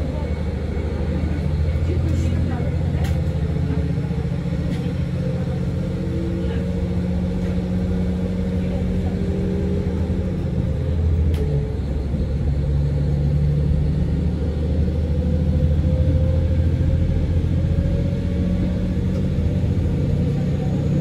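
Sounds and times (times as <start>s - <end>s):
railcar engine and wheel rumble: 0.0s - 21.0s.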